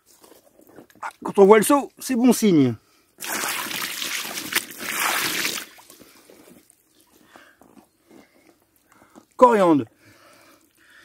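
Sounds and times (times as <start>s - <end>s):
water pouring and splashing: 3.2s - 6.2s.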